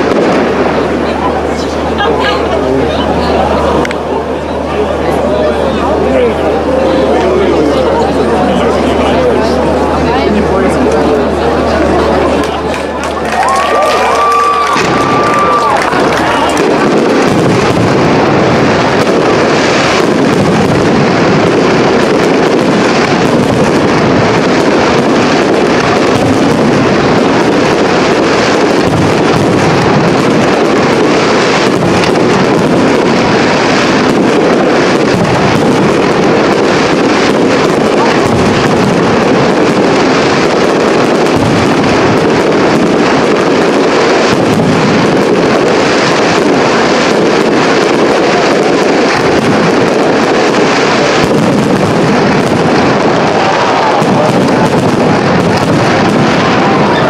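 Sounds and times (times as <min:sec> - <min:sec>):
firework shells bursting: 0:12.2 - 0:57.0.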